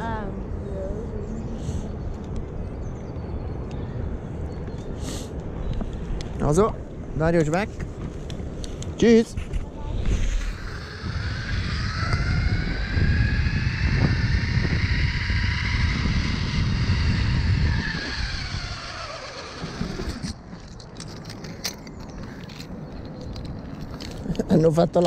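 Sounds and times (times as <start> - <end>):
wind rumble on microphone: 0.0 - 25.0
zipline pulleys whining on cable: 9.9 - 20.4.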